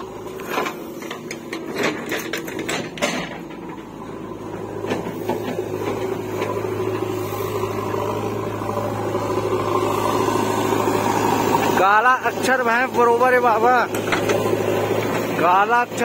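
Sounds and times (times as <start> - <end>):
diesel engine idling: 0.0 - 16.0
soil clods clattering into trolley: 0.3 - 3.9.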